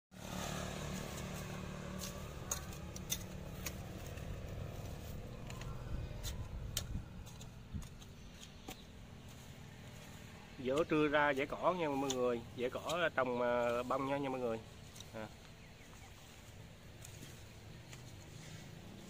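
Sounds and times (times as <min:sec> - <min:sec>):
hoe chopping stony soil: 0:00.2 - 0:09.7, 0:10.7 - 0:13.8.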